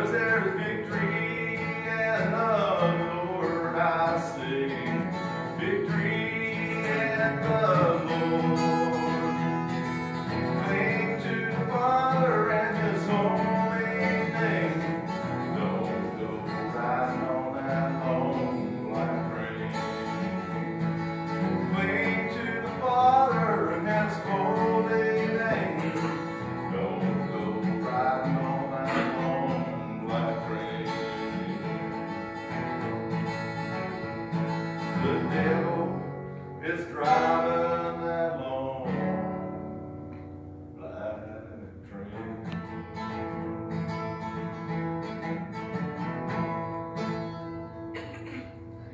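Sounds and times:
person singing: 0.0s - 9.4s, 10.4s - 20.2s, 21.6s - 31.7s, 34.8s - 39.1s
acoustic guitar strumming: 0.0s - 48.9s.

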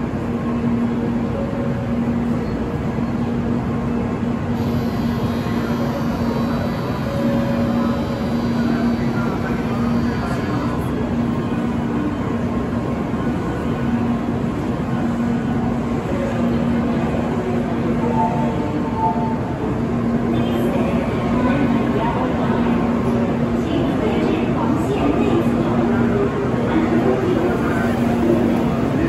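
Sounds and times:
train equipment humming: 0.0s - 29.0s.

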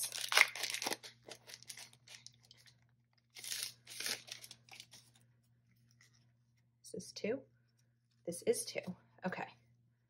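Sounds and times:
plastic packaging crinkling: 0.0s - 5.2s.

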